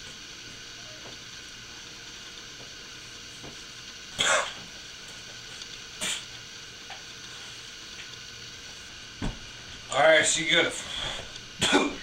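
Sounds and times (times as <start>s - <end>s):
person sputtering puff of breath: 6.0s - 6.3s.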